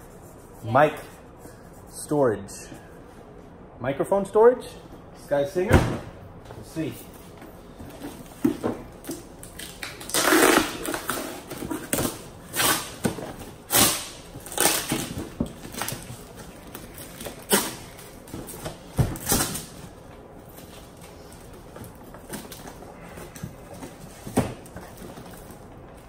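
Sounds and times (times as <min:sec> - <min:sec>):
cardboard and plastic rustling: 0:07.2 - 0:26.0.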